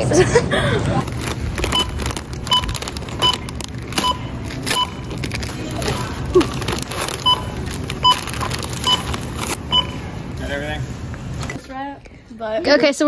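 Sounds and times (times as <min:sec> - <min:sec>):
plastic bags crinkling: 0:01.0 - 0:09.6
scanner two-tone beeps: 0:07.2 - 0:09.1, 0:09.7 - 0:10.1.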